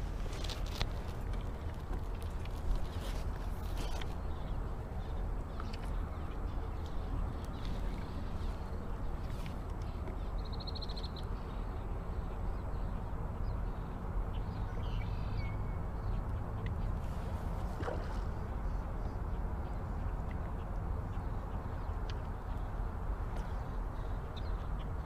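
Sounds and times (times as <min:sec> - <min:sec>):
water moving around a boat: 0:00.0 - 0:10.8, 0:16.2 - 0:24.3.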